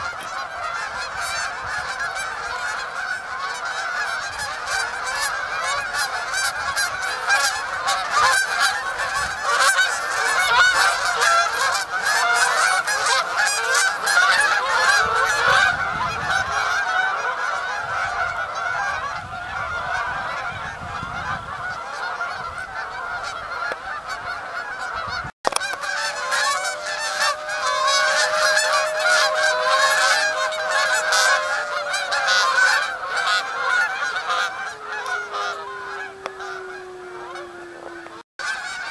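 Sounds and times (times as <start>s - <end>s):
geese honking: 0.0s - 38.9s.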